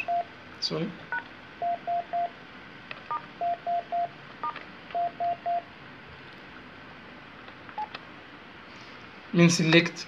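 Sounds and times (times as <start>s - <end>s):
phone key press beeps: 3.4s - 5.6s.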